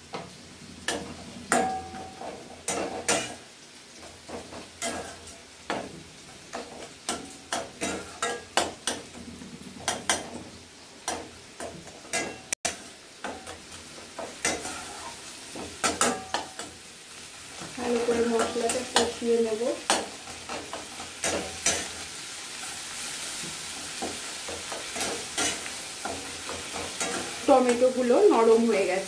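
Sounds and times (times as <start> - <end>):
masala sizzling in oil: 0.0 - 29.0
metal spatula scraping pan: 0.1 - 3.4, 4.3 - 9.2, 11.1 - 16.8, 17.6 - 28.0.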